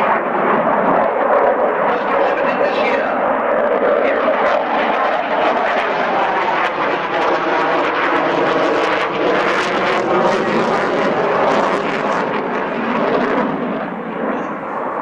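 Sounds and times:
loud jet engine noise: 0:00.0 - 0:15.0.

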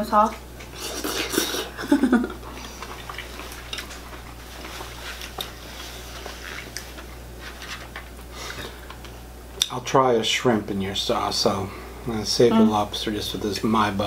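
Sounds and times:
chewing: 0:02.4 - 0:07.1
murmured voice: 0:12.4 - 0:12.9.

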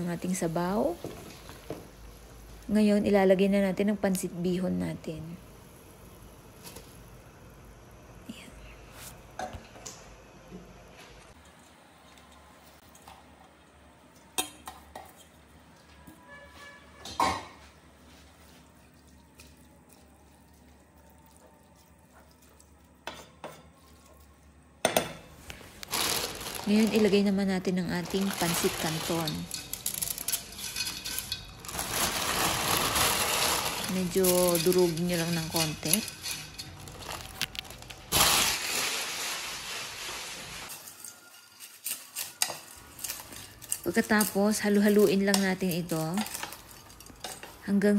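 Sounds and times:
broth boiling hiss: 0:38.1 - 0:40.9.

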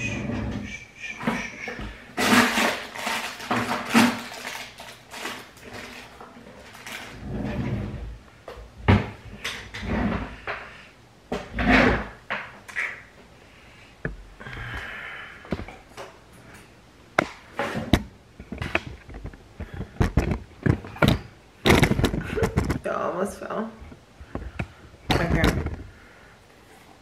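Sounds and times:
knocks and clinks of small items: 0:02.2 - 0:07.2.

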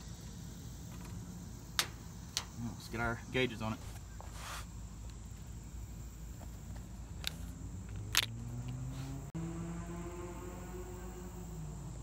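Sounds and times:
air conditioning unit humming: 0:00.0 - 0:07.2.

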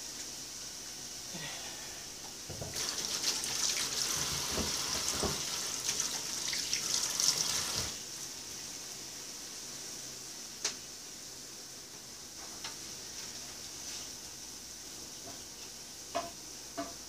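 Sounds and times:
tap water splashing into sink: 0:02.5 - 0:08.0.

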